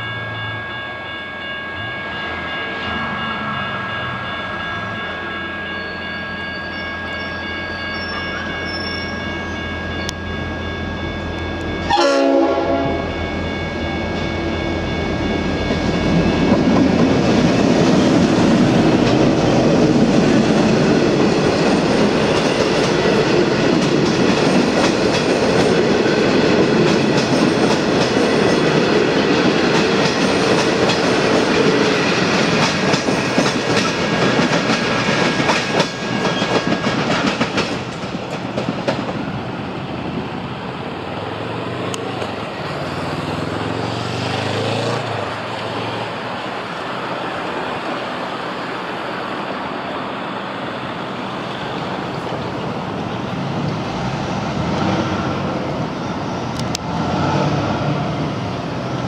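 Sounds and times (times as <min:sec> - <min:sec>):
train rumbling: 0:00.0 - 0:59.0
train wheels clicking over rail joints: 0:16.4 - 0:39.2.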